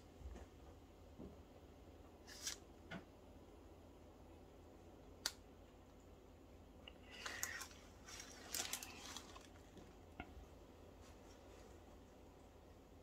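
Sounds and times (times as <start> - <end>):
faint handling noises: 6.9 - 12.2
soft scratchy noise: 7.1 - 12.6.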